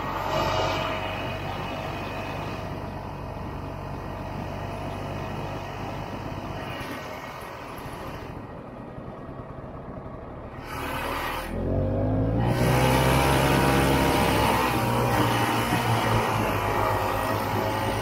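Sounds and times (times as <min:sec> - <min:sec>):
snowmobile two-stroke engine: 0:10.5 - 0:18.0.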